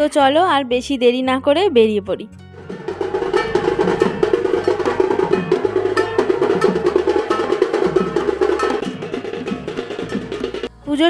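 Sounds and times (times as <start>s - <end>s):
barrel drum beaten with sticks: 2.6s - 10.7s.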